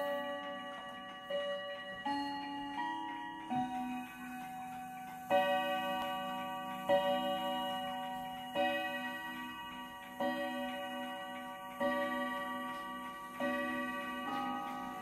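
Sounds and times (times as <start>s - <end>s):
mantel clock striking: 0.0s - 15.0s.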